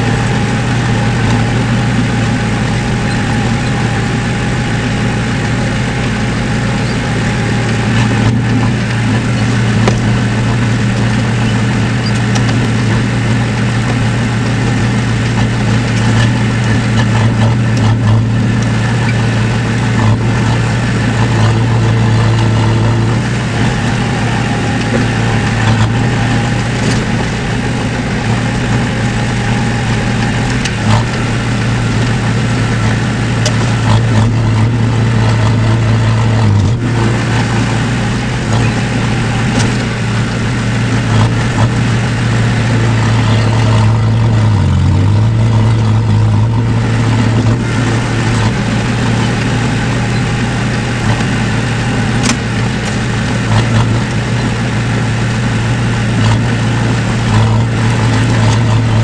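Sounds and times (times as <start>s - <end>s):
diesel engine running under load: 0.0s - 59.0s.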